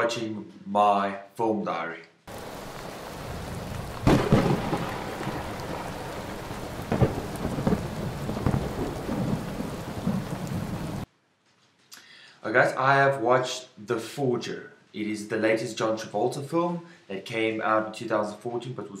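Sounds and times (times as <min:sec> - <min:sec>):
steady rain hiss: 0:02.3 - 0:11.1
thunderclap: 0:02.3 - 0:11.1.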